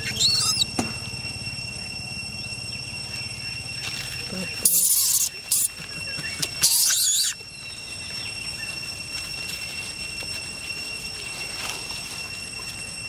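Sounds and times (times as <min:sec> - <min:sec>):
infant monkey squealing: 0:00.0 - 0:00.8, 0:04.2 - 0:07.8.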